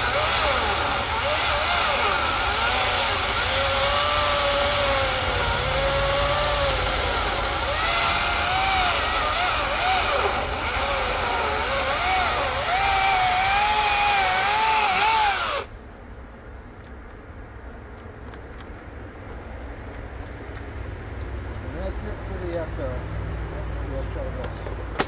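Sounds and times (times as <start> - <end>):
chainsaw cutting wood: 0.0 - 15.7.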